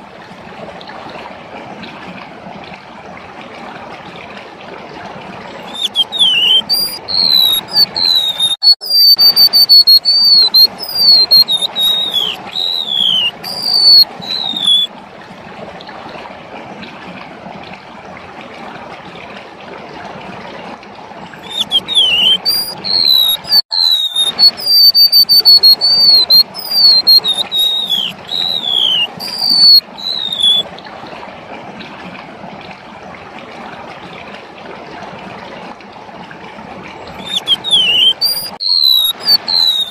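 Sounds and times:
bird singing high whistled notes: 0:05.7 - 0:14.9, 0:21.4 - 0:30.6, 0:37.2 - 0:39.9.

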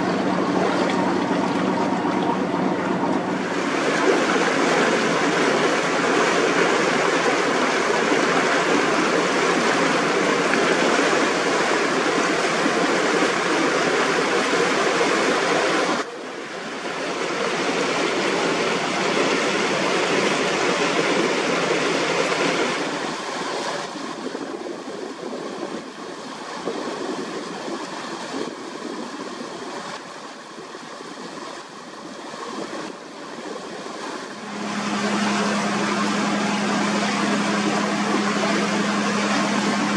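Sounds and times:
water splashing along boat hull: 0:00.0 - 0:39.9.

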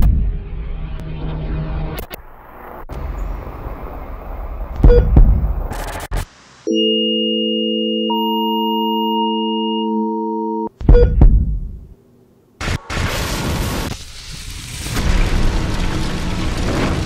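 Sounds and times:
loud burst of thuds: 0:04.8 - 0:05.7, 0:10.8 - 0:11.8
higher electronic tone: 0:06.7 - 0:11.2.

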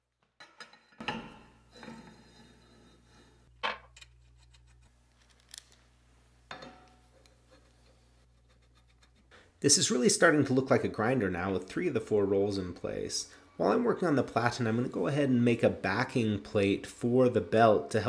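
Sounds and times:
steel tube sliding: 0:00.6 - 0:03.5.

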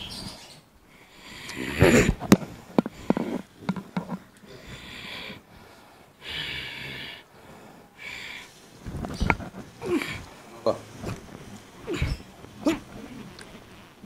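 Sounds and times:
man breathing forcefully: 0:04.4 - 0:08.8.

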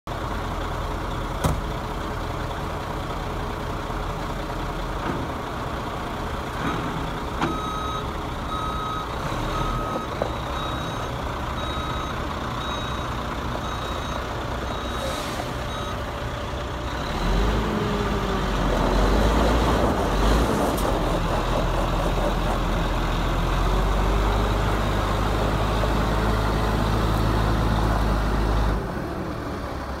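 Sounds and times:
diesel truck engine: 0:00.1 - 0:30.0.

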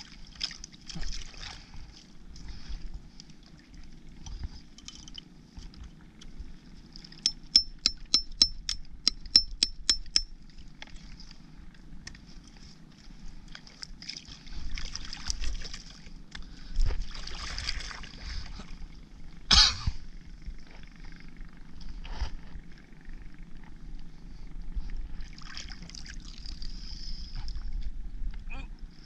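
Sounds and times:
hammer blows ringing: 0:07.3 - 0:10.2.

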